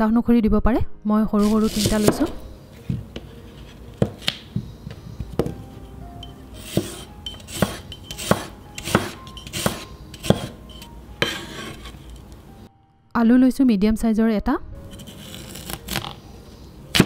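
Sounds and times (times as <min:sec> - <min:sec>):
cleaver knocking chopping board: 0:04.0 - 0:05.6, 0:06.6 - 0:07.0, 0:07.6 - 0:10.6.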